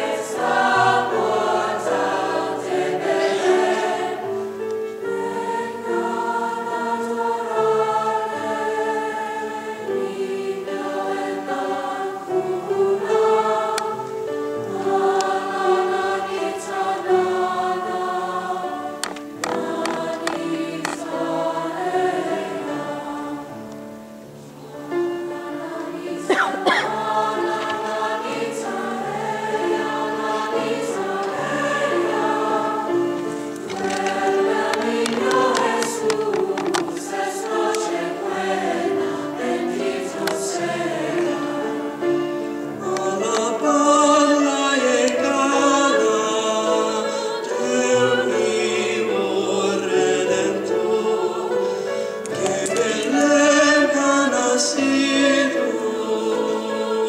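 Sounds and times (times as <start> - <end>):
choir singing in parts: 0.0 - 57.0.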